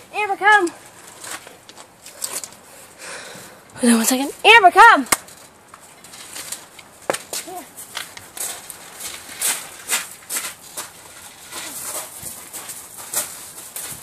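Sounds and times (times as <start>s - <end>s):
footsteps and paws on gravel: 5.5s - 14.0s.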